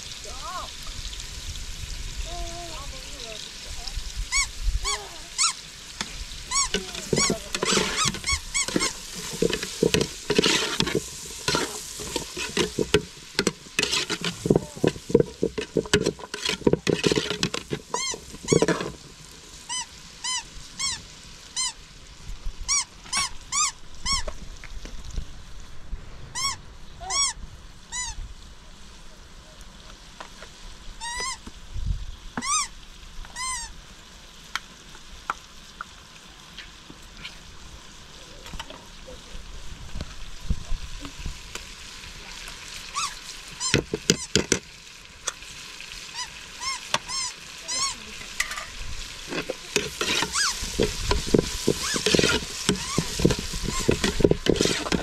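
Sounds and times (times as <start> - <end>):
vegetables sizzling: 0.0 - 25.7, 29.7 - 55.0
ladle scraping pot: 6.0 - 19.2, 43.6 - 44.6, 47.8 - 55.0
short squeaky chirps: 6.5 - 9.4, 17.9 - 18.8, 26.4 - 28.2, 46.1 - 48.0, 50.0 - 50.7, 51.7 - 54.7.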